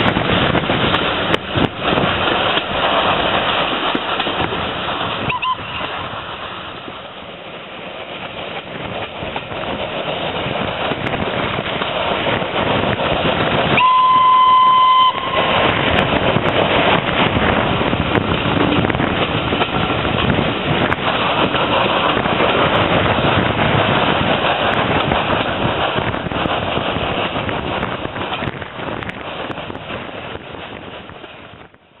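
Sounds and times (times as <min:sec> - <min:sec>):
train running: 0:00.0 - 0:32.0
wind rushing past: 0:00.0 - 0:32.0
steam locomotive whistle: 0:05.2 - 0:05.9, 0:13.7 - 0:15.7.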